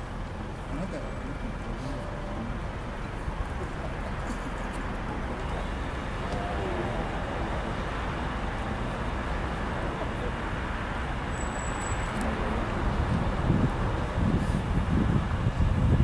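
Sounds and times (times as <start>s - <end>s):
low vehicle rumble: 0.0s - 16.0s
faint voices: 0.4s - 11.0s.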